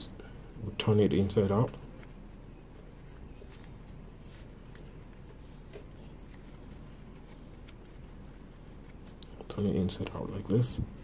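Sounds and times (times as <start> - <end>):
low steady hum: 0.0 - 11.0
fabric rustling and scratching: 1.9 - 9.4.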